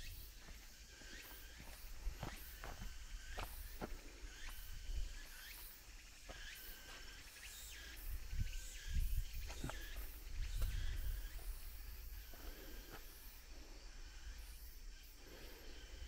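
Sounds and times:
footsteps on forest floor: 0:00.0 - 0:04.7
insects chirping: 0:00.0 - 0:16.0
wind rumble on microphone: 0:08.0 - 0:11.9.

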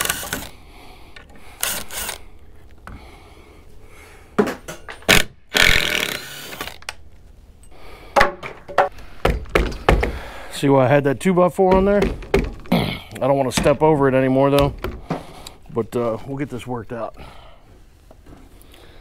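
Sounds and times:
cordless drill driving screws into wood: 0:00.0 - 0:00.6, 0:01.5 - 0:02.2, 0:05.1 - 0:06.9
sharp knocks: 0:08.2 - 0:10.2, 0:11.6 - 0:12.8.

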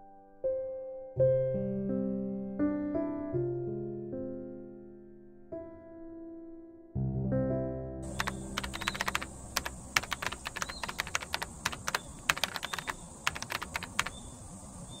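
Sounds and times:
keyboard key clicks: 0:08.0 - 0:14.2
steady high hiss: 0:08.0 - 0:15.0.

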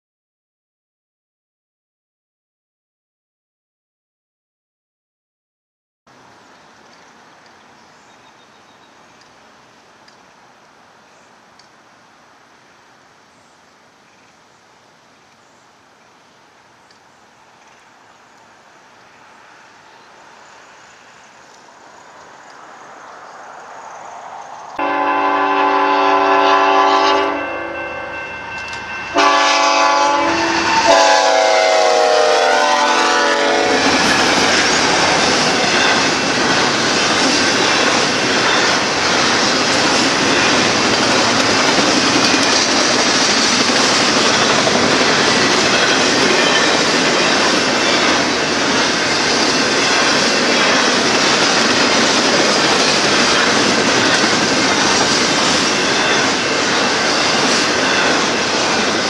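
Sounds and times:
locomotive air horn blasts: 0:24.8 - 0:28.3, 0:29.1 - 0:34.2
train wheels rolling on rails: 0:28.1 - 0:59.0.

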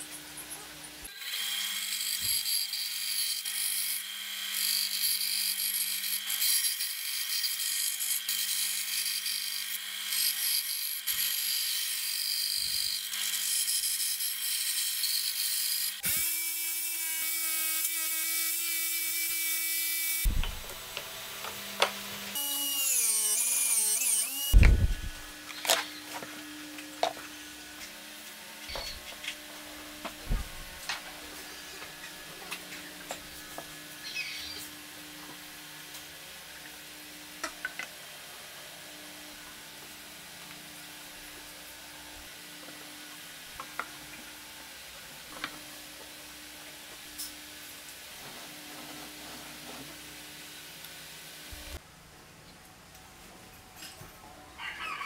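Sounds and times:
band saw cutting wood: 0:01.1 - 0:34.8
power tool humming: 0:01.1 - 0:35.2
machine whine: 0:20.2 - 0:26.4.

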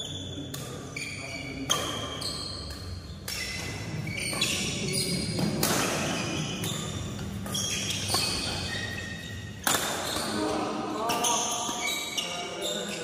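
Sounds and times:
sneakers squeaking on court: 0:00.0 - 0:13.0
racket hitting shuttlecock: 0:01.7 - 0:08.7, 0:09.6 - 0:10.3.

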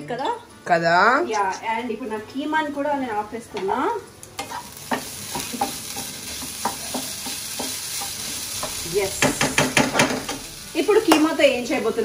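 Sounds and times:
minced meat sizzling in pan: 0:03.0 - 0:12.0.

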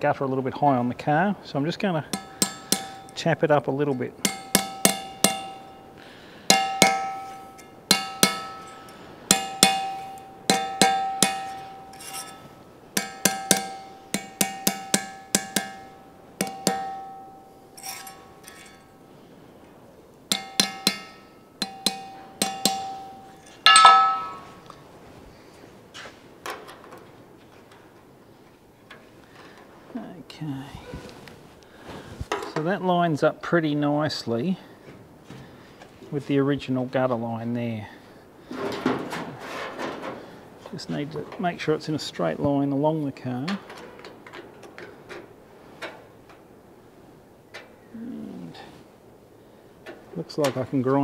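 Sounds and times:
hammer striking sheet steel: 0:02.1 - 0:03.2, 0:04.1 - 0:18.9, 0:20.3 - 0:24.6
bright metallic clang: 0:02.1 - 0:03.3, 0:03.9 - 0:19.0, 0:20.3 - 0:24.6.

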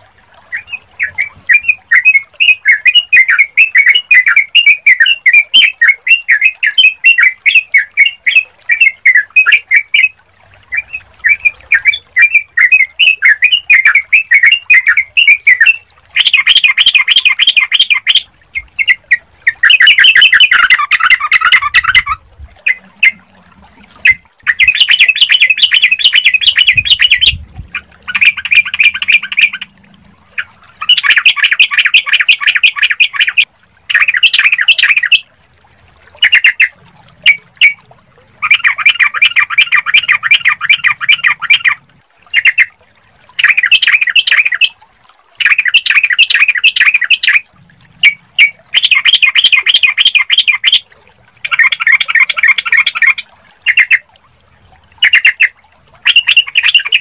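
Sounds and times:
bird chattering calls: 0:24.0 - 0:29.7.

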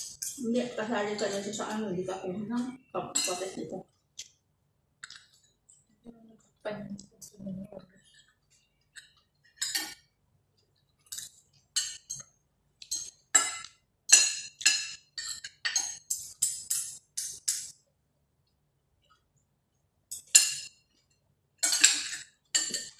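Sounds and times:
cutlery clinking on plates: 0:03.1 - 0:03.6, 0:09.0 - 0:10.0, 0:11.0 - 0:12.2, 0:12.8 - 0:17.7, 0:20.1 - 0:20.8, 0:21.6 - 0:22.9.

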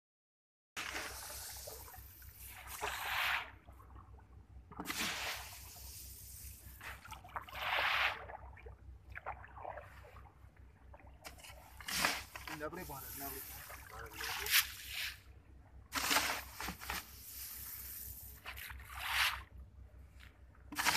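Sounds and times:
grain showering onto water: 0:11.8 - 0:15.0.

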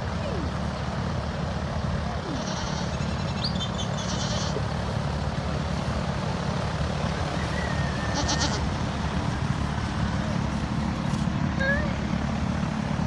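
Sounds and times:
steady low rumble: 0:00.0 - 0:13.0
young goat bleating: 0:02.2 - 0:04.8, 0:07.7 - 0:08.8.

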